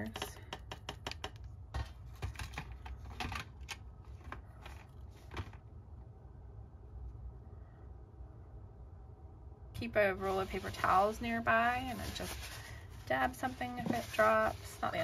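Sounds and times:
paintbrush tapping on palette: 0.0s - 1.4s.

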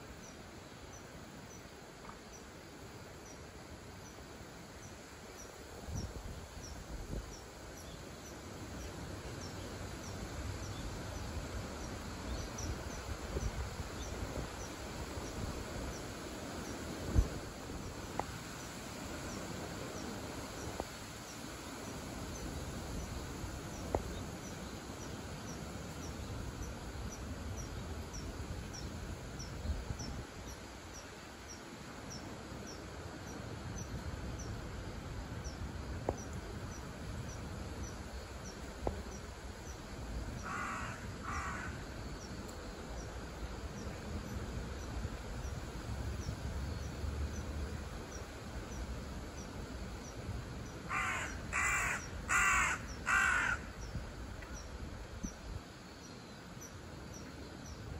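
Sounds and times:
crow cawing: 40.4s - 41.8s, 50.9s - 53.8s.

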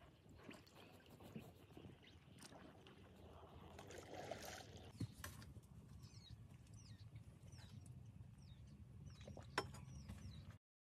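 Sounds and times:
faint bird chirps: 5.9s - 10.6s.

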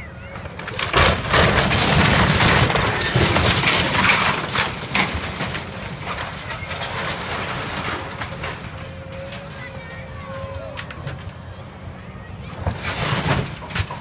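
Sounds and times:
wall cracking and crunching: 0.5s - 9.6s
debris crashing down: 0.6s - 9.6s, 12.6s - 14.0s.

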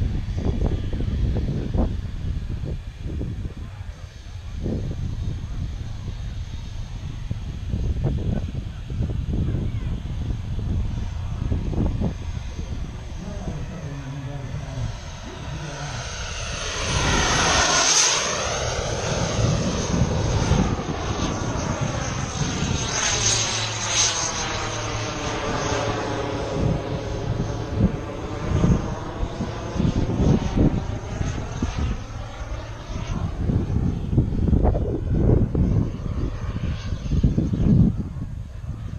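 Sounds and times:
model airplane engine flying past: 0.0s - 38.9s
wind buffeting microphone: 0.0s - 38.9s.

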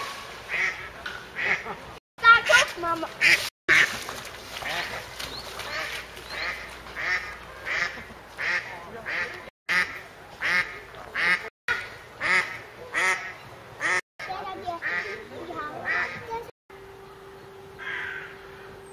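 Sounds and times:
ducks quacking: 0.4s - 2.6s, 3.2s - 16.5s.

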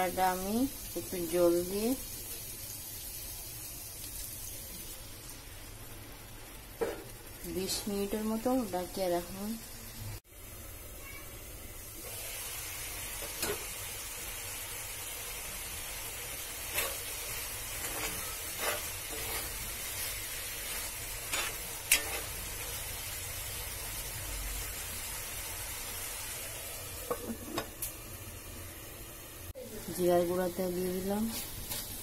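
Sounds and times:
curry sizzling in a pan: 0.0s - 32.0s
spoon scraping and knocking pan: 16.6s - 22.4s.

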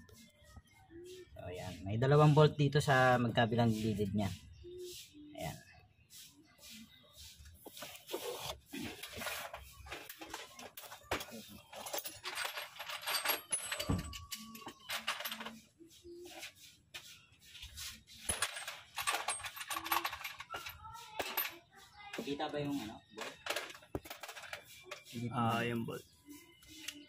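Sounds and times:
metal hand tools clinking: 11.2s - 15.6s, 18.3s - 21.6s.

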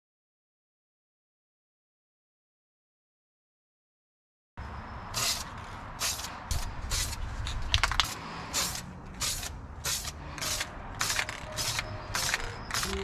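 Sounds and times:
spray can hissing bursts: 5.2s - 7.2s, 7.9s - 13.0s
sharp clicks: 10.0s - 13.0s.

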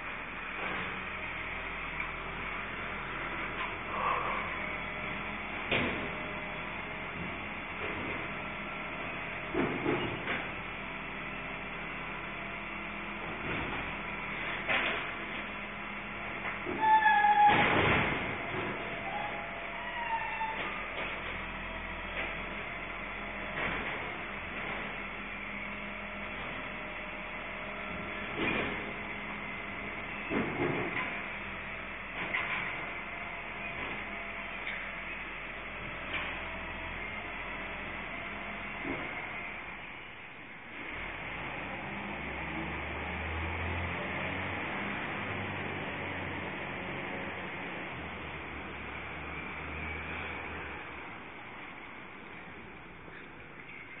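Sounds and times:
truck engine humming: 0.0s - 40.4s
clanks and bangs of collection gear: 5.6s - 6.2s, 9.5s - 10.6s, 13.3s - 15.5s, 16.4s - 19.0s, 23.5s - 25.0s, 28.2s - 28.9s, 30.2s - 31.3s, 32.1s - 33.0s.

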